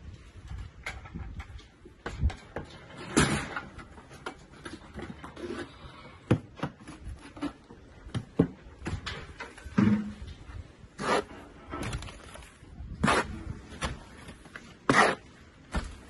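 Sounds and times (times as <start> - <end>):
trowel scraping mortar on metal: 10.9 - 12.3, 12.9 - 16.0.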